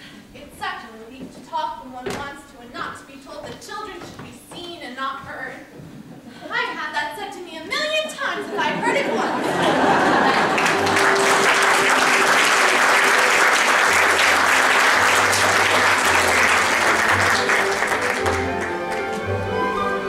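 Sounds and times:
audience applauding: 9.6 - 19.5
orchestral music: 10.4 - 20.0.

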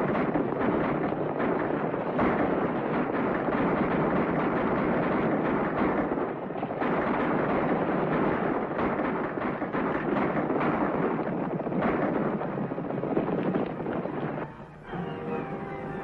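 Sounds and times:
horses galloping: 0.0 - 16.0
sharp cracks: 0.0 - 16.0
orchestral film music: 14.4 - 16.0.

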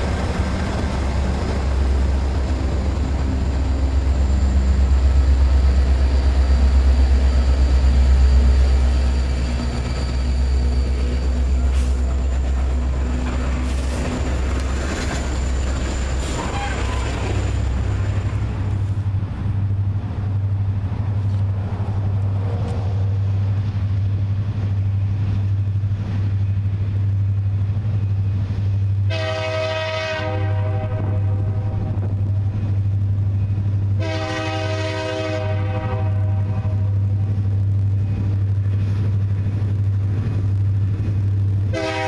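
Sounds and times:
diesel locomotive rumble: 0.0 - 42.0
train wheels rumbling on rails: 0.0 - 42.0
train horn: 16.3 - 17.3, 29.0 - 32.1, 33.9 - 37.2, 41.7 - 42.0.

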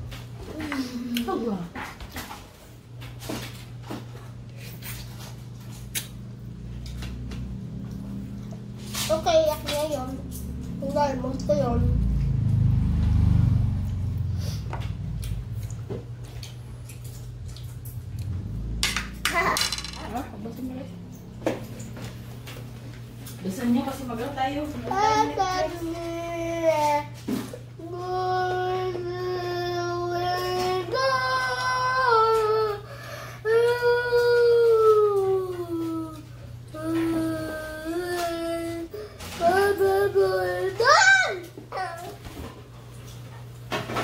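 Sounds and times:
low rumbling hum: 0.0 - 44.0
chewing: 15.1 - 18.5.

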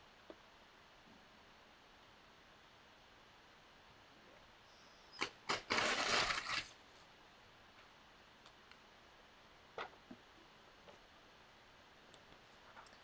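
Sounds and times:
paper ripping: 5.6 - 6.7.

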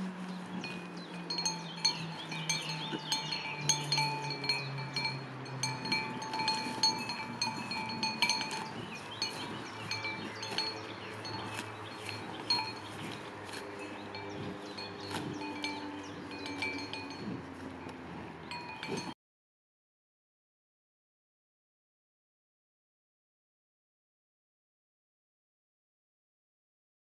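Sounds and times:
small metal bell tinkling: 0.6 - 13.2, 14.1 - 17.4, 18.5 - 19.2.

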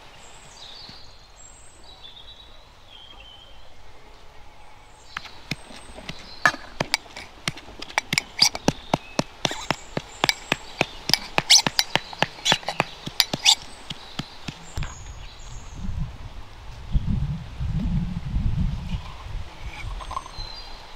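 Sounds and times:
mortar tapping on steel plate: 5.2 - 14.7
pestle clinking in metal mortar: 5.5 - 14.7.

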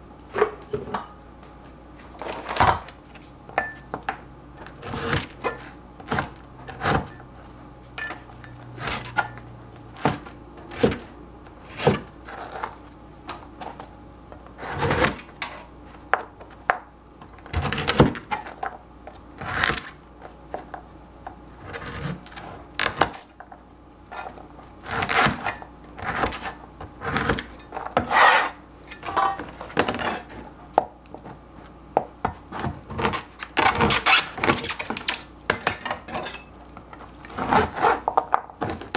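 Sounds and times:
cleaver crunching through bread crust: 4.5 - 7.5, 8.2 - 23.4, 24.0 - 29.1, 31.6 - 35.6, 36.7 - 38.9.

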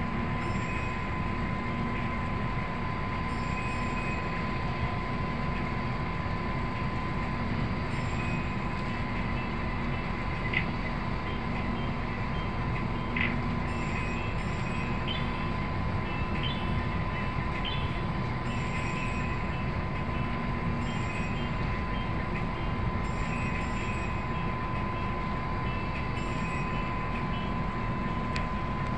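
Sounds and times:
boat engine droning: 0.0 - 28.9
thin mechanical whine: 0.0 - 28.9.

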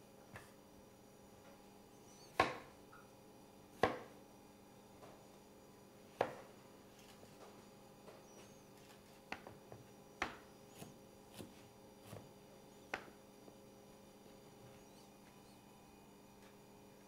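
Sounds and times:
knife chopping on wooden board: 2.3 - 2.7, 3.8 - 4.1, 9.3 - 12.3.

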